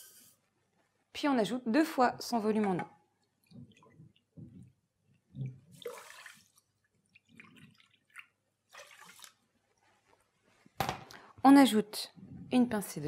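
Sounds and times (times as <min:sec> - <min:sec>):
water pouring and splashing: 0:05.4 - 0:09.6.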